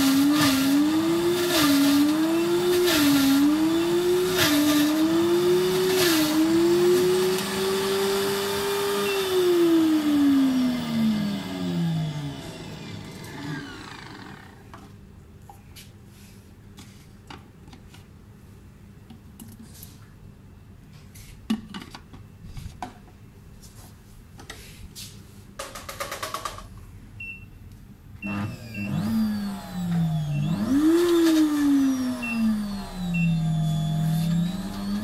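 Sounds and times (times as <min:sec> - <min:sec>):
blender motor running: 0:00.0 - 0:14.7, 0:28.2 - 0:35.0.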